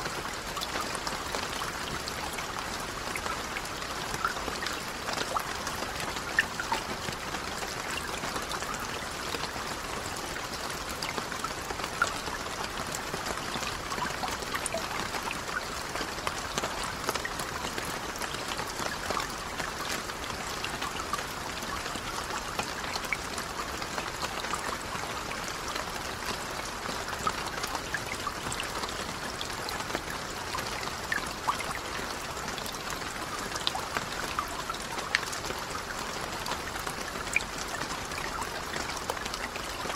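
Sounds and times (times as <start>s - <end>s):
rain falling on water: 0.0s - 39.9s.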